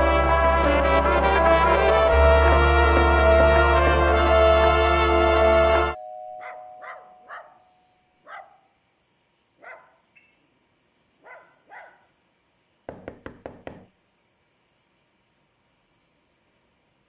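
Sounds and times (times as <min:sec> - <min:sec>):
brass music: 0:00.0 - 0:06.0
dog barking faintly: 0:06.4 - 0:08.7, 0:09.6 - 0:10.0, 0:11.2 - 0:12.1.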